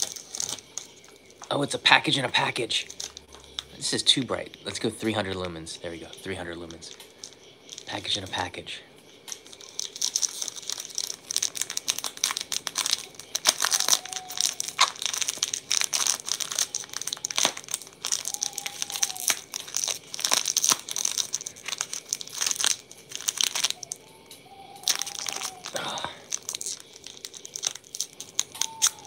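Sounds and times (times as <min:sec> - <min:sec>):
plastic wrapper crinkling: 0:00.0 - 0:29.0.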